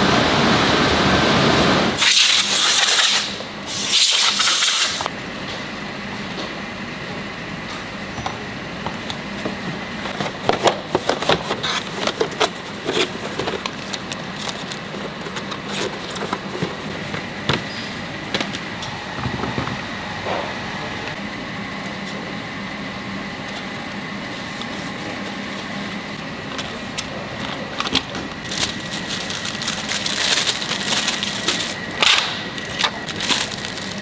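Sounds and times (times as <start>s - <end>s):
loud hiss bursts: 2.0s - 5.1s
paper rustling: 27.6s - 34.0s.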